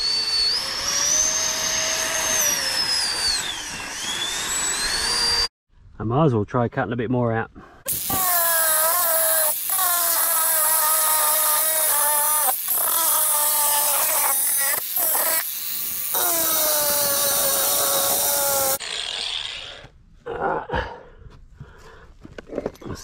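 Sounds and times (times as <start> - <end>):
angle grinder cutting metal: 0.0 - 5.5, 7.9 - 19.9.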